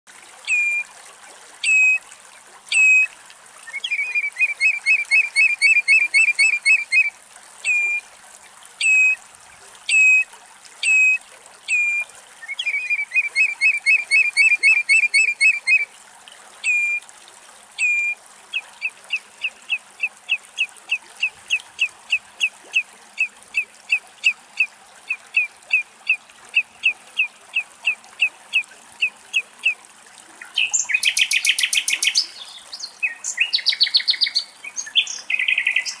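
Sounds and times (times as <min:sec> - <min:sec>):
redshank calling: 0:00.5 - 0:00.8, 0:03.7 - 0:07.1, 0:07.7 - 0:08.0, 0:10.8 - 0:15.8, 0:16.6 - 0:17.0, 0:17.8 - 0:18.2.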